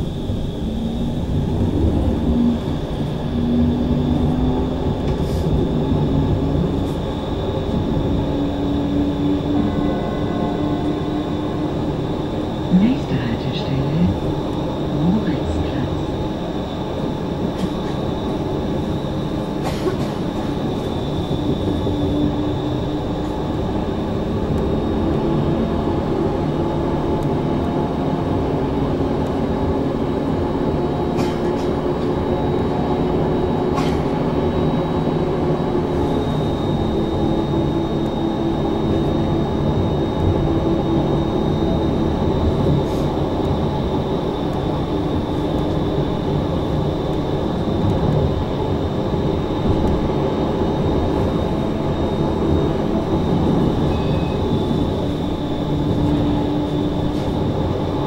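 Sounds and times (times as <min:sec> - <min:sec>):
tram rolling and motor noise: 0:00.0 - 0:58.0
high electrical whine: 0:31.8 - 0:58.0.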